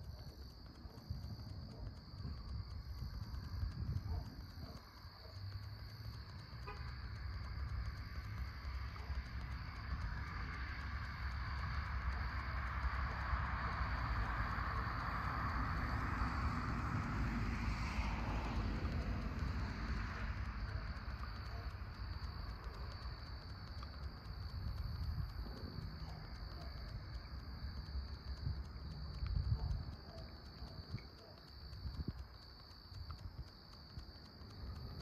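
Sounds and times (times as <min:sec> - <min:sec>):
vehicle passing by: 0:13.2 - 0:21.9.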